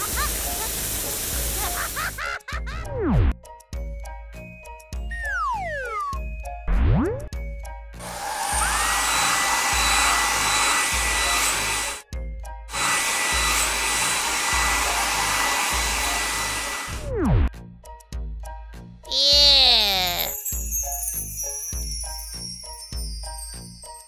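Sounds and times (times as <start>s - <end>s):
soft background music beat: 2.3s - 19.6s.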